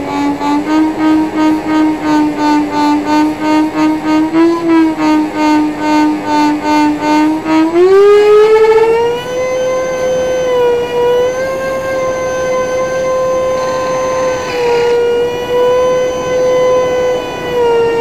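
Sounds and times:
electric ducted fan whine: 0.0 - 18.0.

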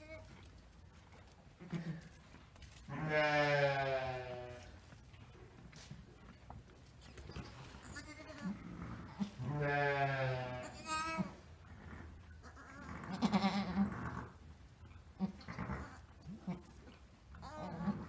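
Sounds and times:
sheep bleating: 2.9 - 4.7, 7.8 - 11.4, 12.4 - 14.2, 17.4 - 18.0.

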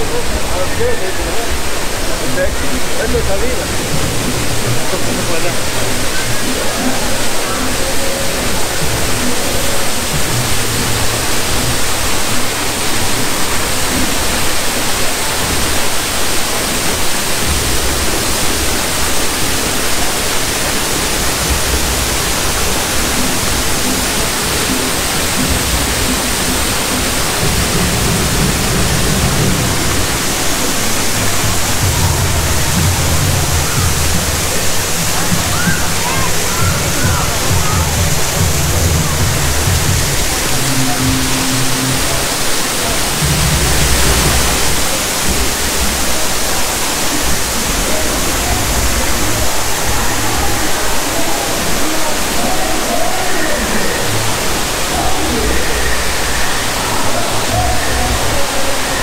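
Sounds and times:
faint music: 0.0 - 59.0
waterfall rushing: 0.0 - 59.0.

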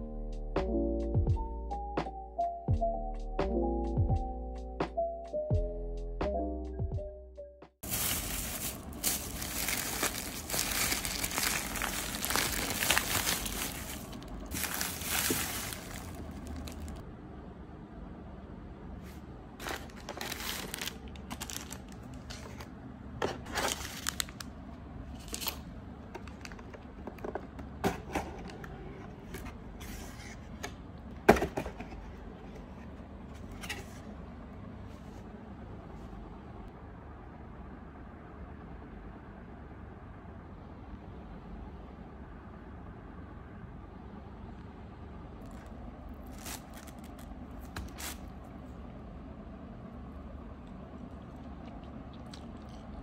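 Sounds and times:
handling cardboard boxes: 7.8 - 17.0
plastic bag crinkling: 7.8 - 17.0, 19.6 - 22.3, 23.6 - 24.5, 45.4 - 48.3.

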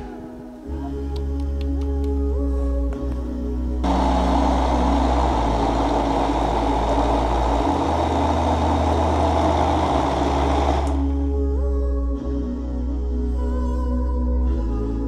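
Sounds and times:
electric blender running: 3.8 - 11.0.

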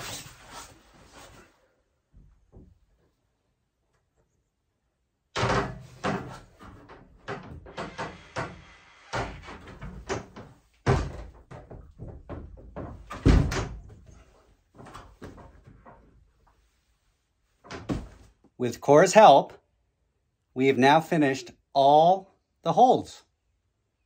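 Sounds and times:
climber thudding on wooden wall: 5.4 - 16.1, 17.6 - 18.3.

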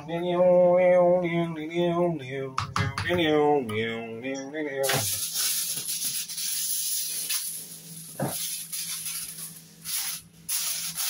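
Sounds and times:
kitchen foil crinkling: 4.9 - 11.0.

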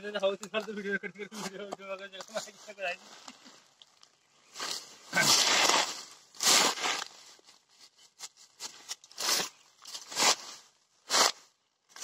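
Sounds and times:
footsteps crunching dry leaves: 4.0 - 12.0.

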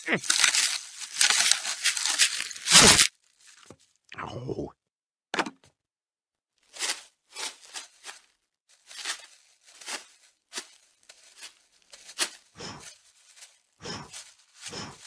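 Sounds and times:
plastic wrap crinkling: 0.1 - 4.0, 7.6 - 14.6.

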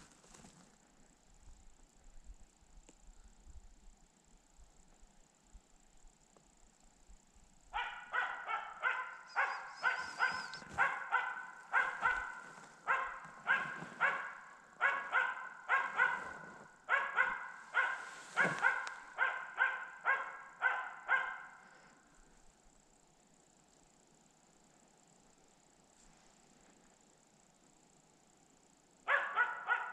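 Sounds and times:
dog barking steadily: 7.7 - 21.9, 29.0 - 29.9.

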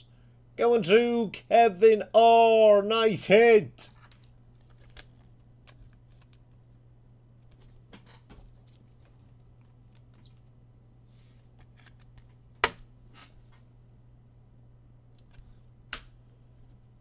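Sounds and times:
low steady hum: 0.0 - 17.0
trading cards rustling and clicking: 3.9 - 6.5, 8.4 - 10.6.

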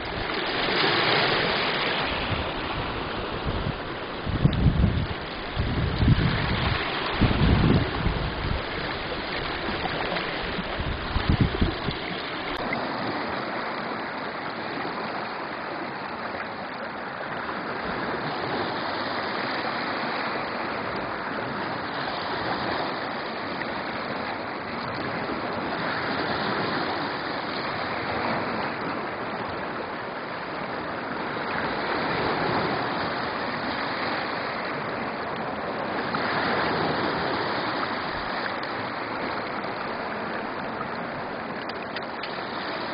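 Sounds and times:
wind buffeting microphone: 0.0 - 12.6
small waves washing onto beach: 0.0 - 42.9
stream running over stones: 0.0 - 42.9.

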